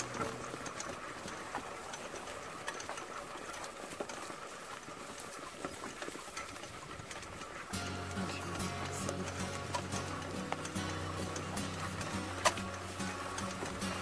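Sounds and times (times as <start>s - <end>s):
cart hissing over snow: 0.0s - 14.0s
harness hooves and wheels clicking: 0.0s - 14.0s.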